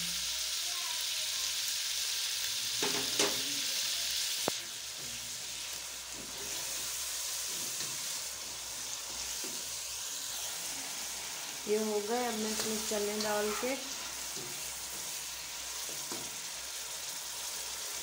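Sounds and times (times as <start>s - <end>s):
food sizzling in oil: 0.0s - 18.0s
spatula stirring: 12.3s - 16.5s.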